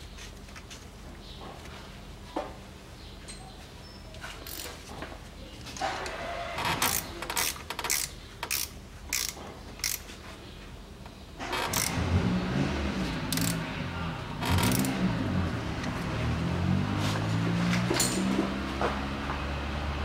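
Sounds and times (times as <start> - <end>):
ratchet clicking: 4.4 - 4.8, 6.8 - 10.1, 11.6 - 12.0, 13.2 - 13.7, 14.4 - 15.0.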